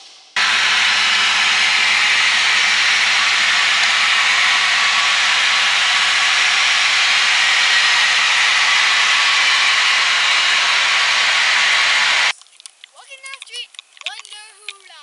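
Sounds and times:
engines and airflow hiss: 0.4 - 12.3.

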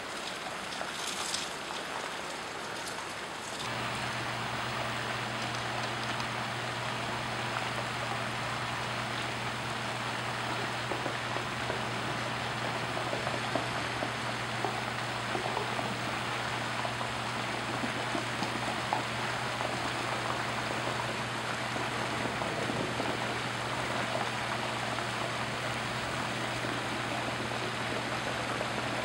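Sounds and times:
floodwater rushing down street: 0.0 - 29.0
low steady hum: 3.6 - 29.0.

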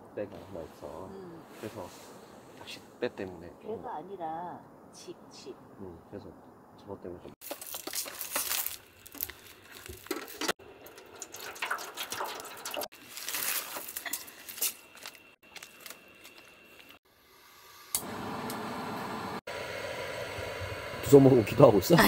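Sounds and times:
wet squishy food handling: 7.4 - 10.6, 12.2 - 16.0
steady hiss: 19.1 - 22.0.

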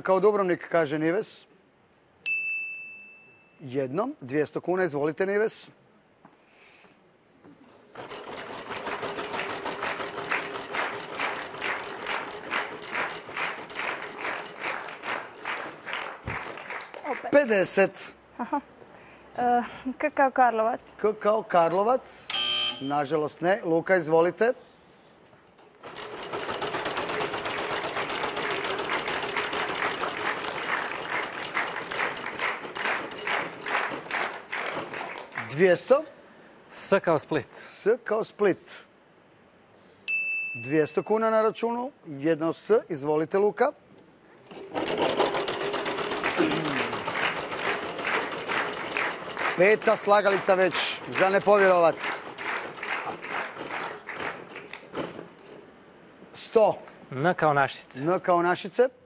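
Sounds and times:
prize wheel clicking: 8.0 - 15.6, 25.9 - 33.9, 44.6 - 54.0.

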